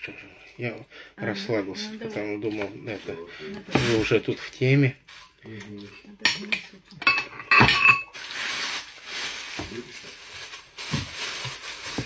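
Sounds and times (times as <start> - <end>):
tableware clinking on table: 6.2 - 8.2.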